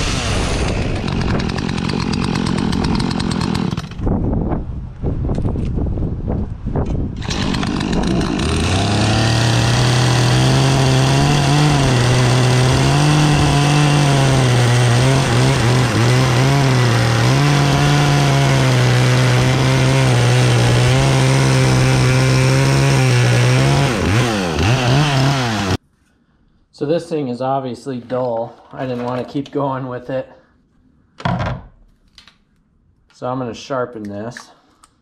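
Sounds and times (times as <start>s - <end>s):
chainsaw revving and cutting: 0.0s - 4.0s, 7.2s - 25.8s.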